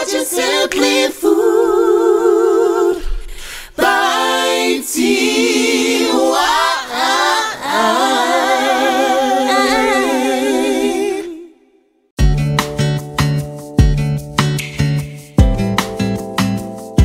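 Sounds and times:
a cappella voices singing: 0:00.0 - 0:11.8.

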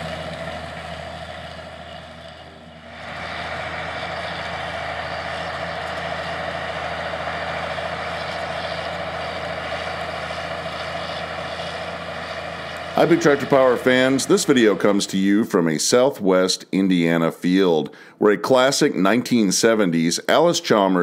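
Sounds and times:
tractor diesel engine under load: 0:00.0 - 0:16.4.

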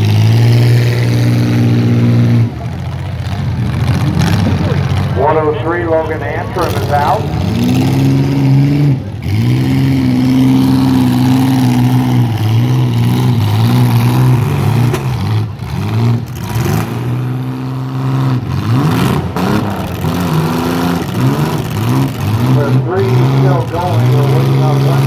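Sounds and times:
car engines revving hard: 0:00.0 - 0:25.0.

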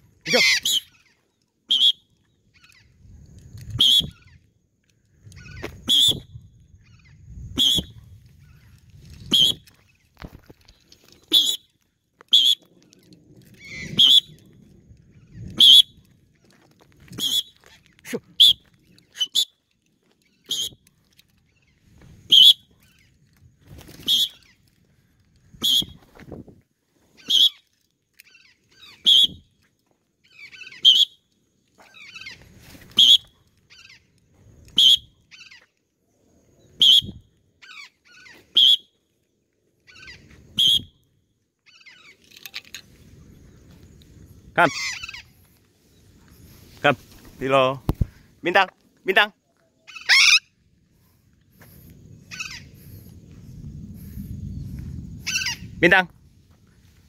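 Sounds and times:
parrots screeching: 0:00.3 - 0:01.1, 0:13.6 - 0:14.0, 0:37.6 - 0:38.4, 0:39.9 - 0:40.2, 0:44.6 - 0:45.4, 0:49.9 - 0:50.6, 0:52.3 - 0:52.7, 0:55.2 - 0:55.7.

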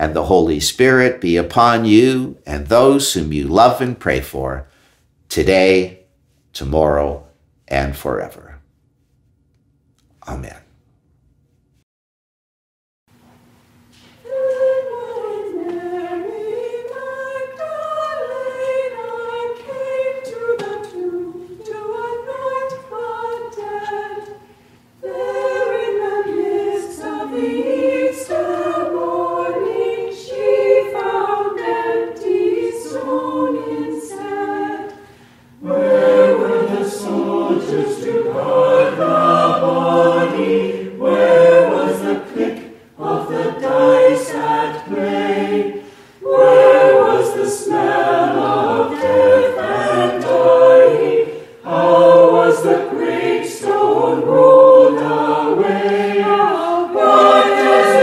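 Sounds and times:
choir singing: 0:00.0 - 0:03.9, 0:14.2 - 0:58.0.

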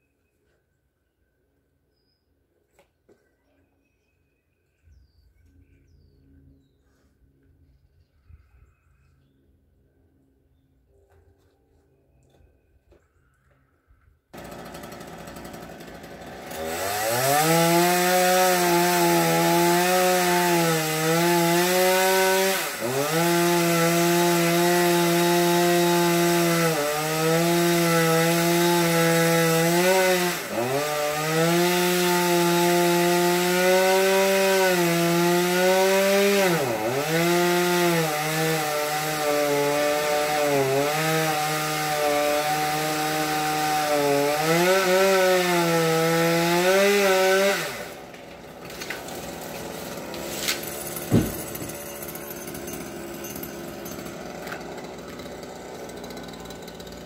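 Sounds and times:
chainsaw cutting wood: 0:14.4 - 0:57.0.

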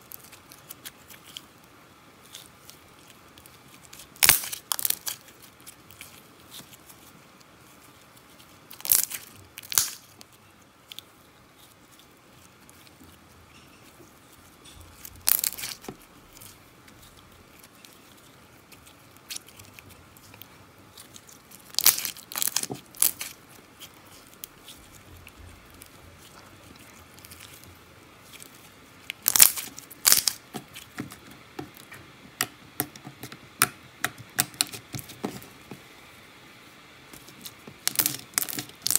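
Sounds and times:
slime popping and clicking: 0:37.8 - 0:38.9.

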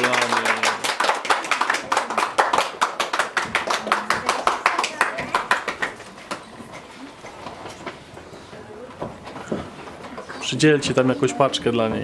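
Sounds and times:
people clapping: 0:00.0 - 0:07.4.

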